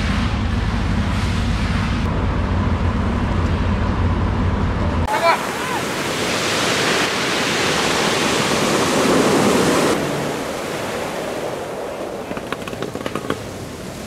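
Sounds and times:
surf washing up a pebble beach: 5.1 - 12.3.

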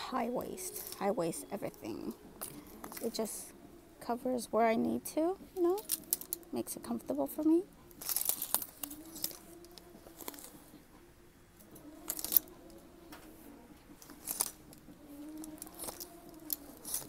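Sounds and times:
hangers clacking along metal rack: 5.6 - 6.5, 7.9 - 10.5, 13.9 - 17.0.

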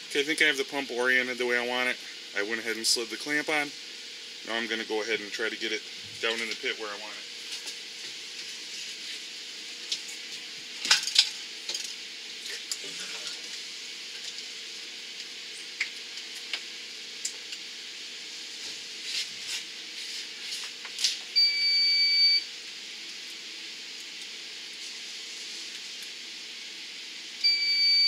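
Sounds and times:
high electronic beep: 27.5 - 28.0.

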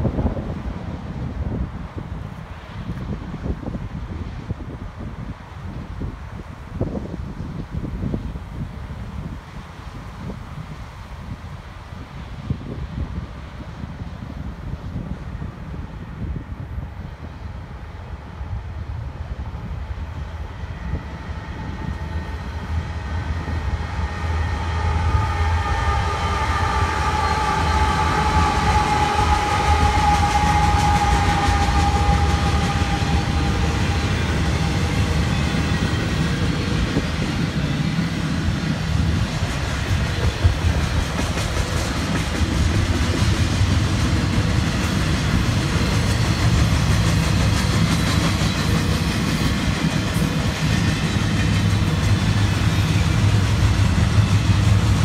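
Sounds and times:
diesel locomotive rumble: 0.0 - 55.0
train wheels clattering on rail: 20.0 - 55.0.

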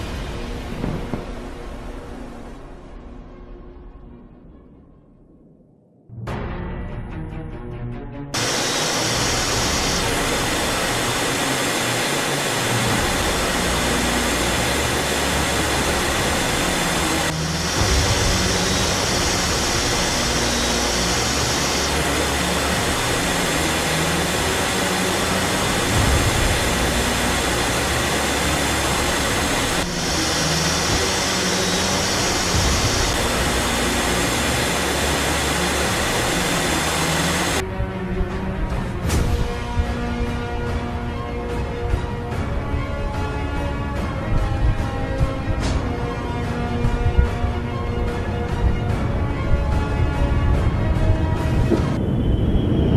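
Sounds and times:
jet engine roar: 8.4 - 37.6, 44.4 - 52.9.

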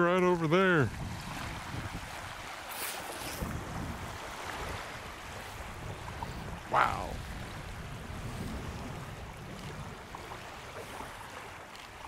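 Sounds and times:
wind: 0.0 - 12.0
rushing water hiss: 2.5 - 3.5.

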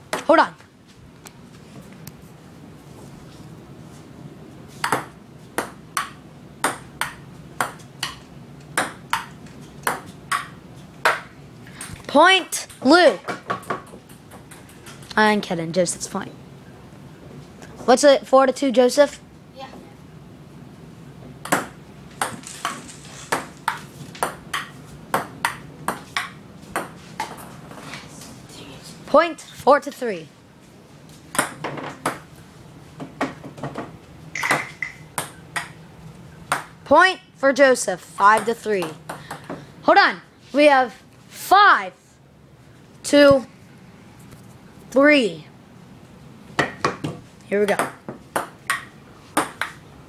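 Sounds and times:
ping-pong ball clicking: 4.8 - 8.2, 8.8 - 11.2, 34.4 - 35.8, 47.7 - 49.8
ping pong ball tapping paddles: 4.8 - 11.9, 12.7 - 15.1, 21.4 - 27.5, 31.3 - 32.3, 33.2 - 35.8, 36.5 - 36.8, 38.2 - 39.6, 46.6 - 49.8.

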